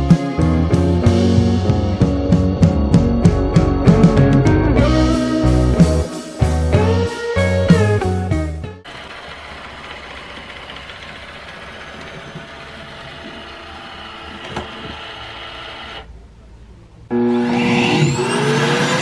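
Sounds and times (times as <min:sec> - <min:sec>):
background music: 0:00.0 - 0:08.8
dock suction motor whining: 0:09.6 - 0:16.1, 0:17.2 - 0:19.0.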